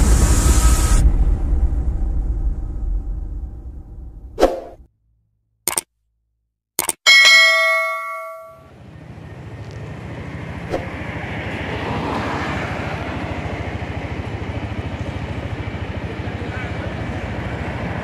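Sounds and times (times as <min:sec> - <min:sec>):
bright bell ding: 0:07.1 - 0:08.7
vehicle engine running: 0:08.7 - 0:12.0, 0:12.6 - 0:18.0.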